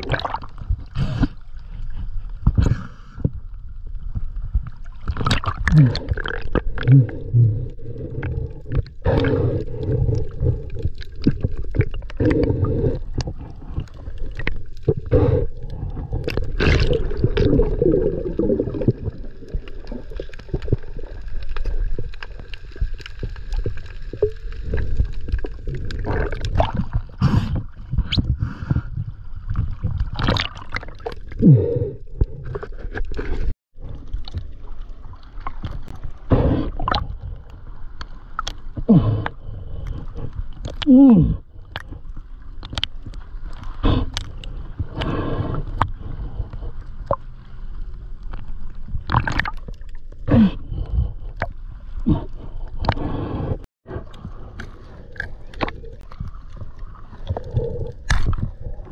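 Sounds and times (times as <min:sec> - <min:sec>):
underwater gurgling and rumbling: 0:00.0 - 0:58.9.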